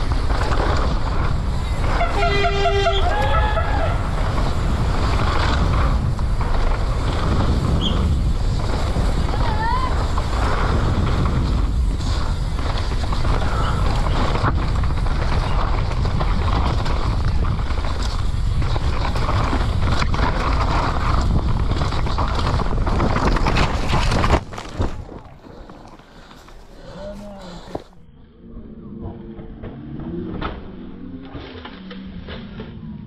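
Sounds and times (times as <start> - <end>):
wind rush on microphone: 0.0 - 26.4.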